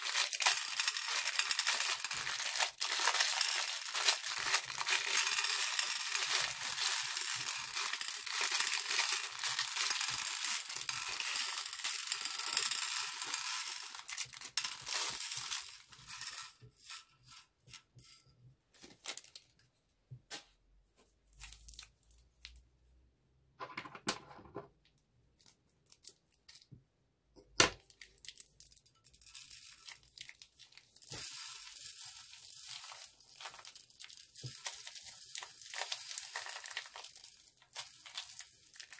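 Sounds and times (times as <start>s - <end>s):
beads ticking in glass dish: 0.0s - 16.5s
plastic bag crinkling: 0.0s - 16.6s, 27.9s - 38.9s.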